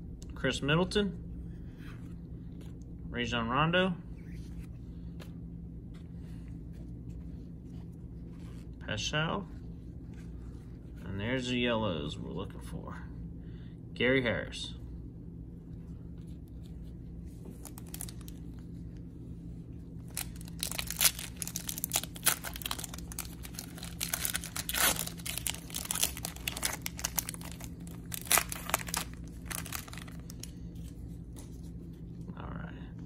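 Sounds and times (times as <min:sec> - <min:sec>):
plastic wrapper ripping and crinkling: 0:17.5 - 0:18.6, 0:20.0 - 0:30.6.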